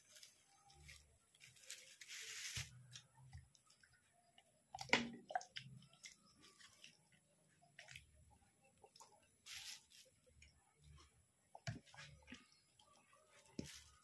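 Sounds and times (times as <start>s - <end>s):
close-up chewing: 2.9s - 9.3s.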